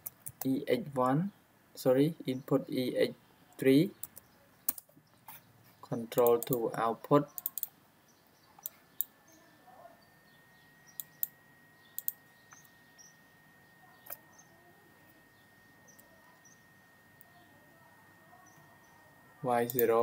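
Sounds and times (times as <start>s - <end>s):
computer mouse clicks: 6.2s - 6.6s, 7.4s - 7.7s, 8.6s - 9.1s, 12.0s - 12.7s, 19.6s - 19.9s.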